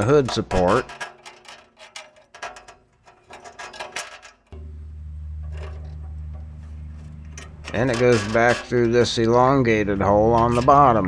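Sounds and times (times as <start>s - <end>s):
metal clicks and rattles: 0.0s - 11.0s
steady low hum: 4.4s - 11.0s.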